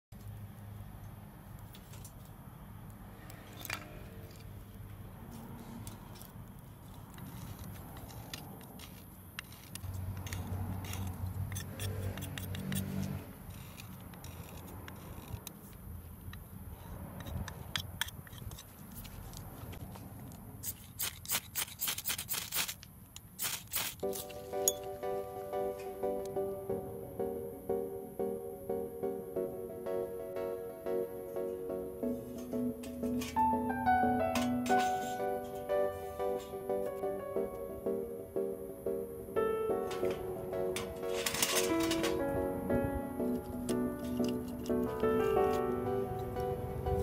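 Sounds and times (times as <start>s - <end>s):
knife scraping a stick: 3.3s - 24.8s, 34.3s - 37.0s, 43.3s - 45.8s.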